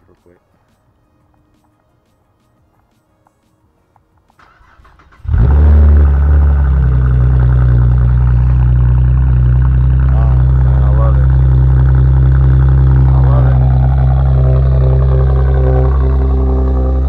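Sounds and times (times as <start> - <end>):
car engine cranking: 4.4 - 17.0
car engine revving and idling: 4.6 - 17.0.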